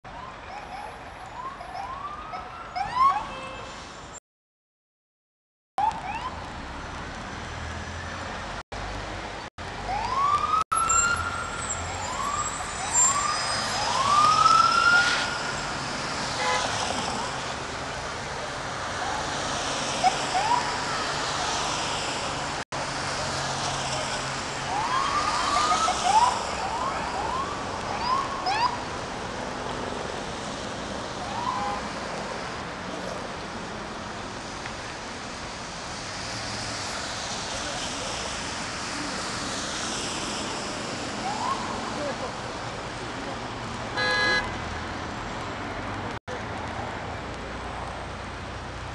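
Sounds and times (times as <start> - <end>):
traffic: 0.0 - 4.2, 5.8 - 48.9
police sirens whooping: 0.1 - 3.5, 9.8 - 15.6, 20.0 - 21.7, 23.9 - 28.9, 31.2 - 31.8, 41.1 - 42.1.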